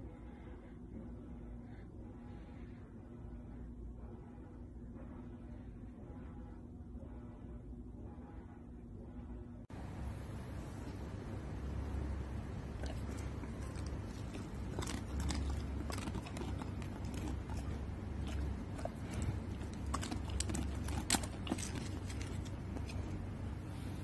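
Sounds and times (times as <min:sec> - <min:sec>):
steady low hum: 0:00.0 - 0:24.0
dog crunching a chip: 0:12.6 - 0:23.2.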